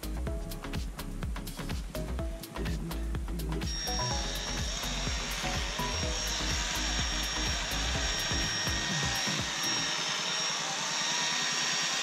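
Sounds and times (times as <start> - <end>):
rotary polisher motor whine: 3.7 - 12.0.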